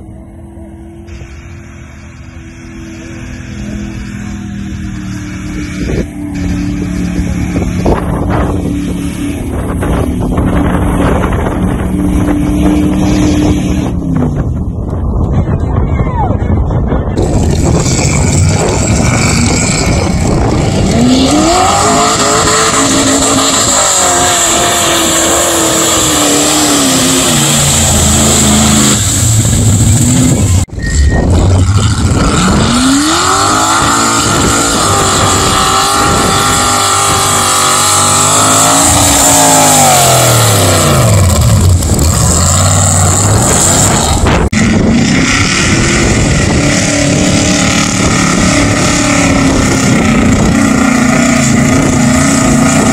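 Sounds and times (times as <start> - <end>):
truck engine at full throttle: 0.0 - 52.9.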